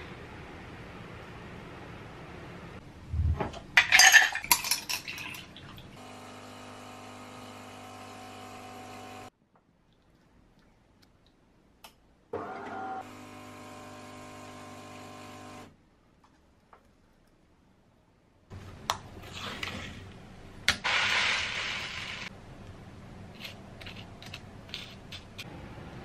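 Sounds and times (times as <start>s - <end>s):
ice cubes clinking in glass: 3.8s - 5.5s
espresso machine humming: 6.0s - 9.3s, 12.4s - 15.7s.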